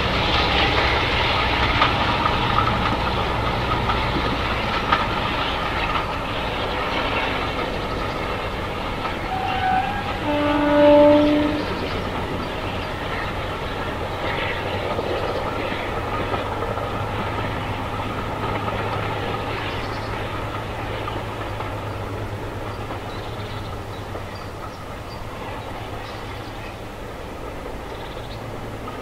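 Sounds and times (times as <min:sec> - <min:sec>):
diesel locomotive humming: 0:00.0 - 0:29.0
train horn: 0:09.2 - 0:12.0.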